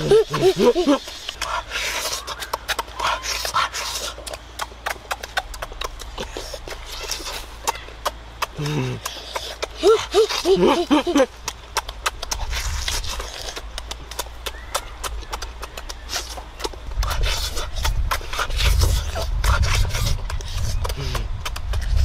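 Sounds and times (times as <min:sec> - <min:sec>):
chewing and lip-smacking: 0:00.0 - 0:22.0
meat tearing: 0:11.3 - 0:22.0.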